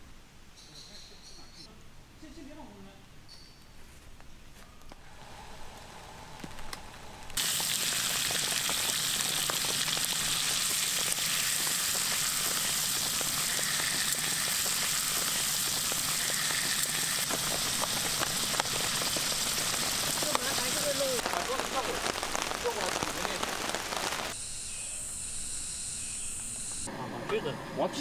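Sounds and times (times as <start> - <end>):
meat sizzling in a frying pan: 7.4 - 24.4.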